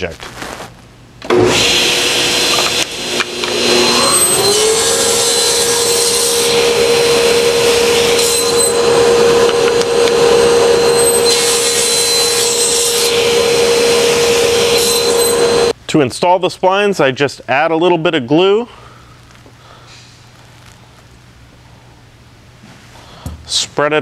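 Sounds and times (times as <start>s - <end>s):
saw blade cutting wood: 1.3s - 15.7s
table saw hum: 1.3s - 15.7s.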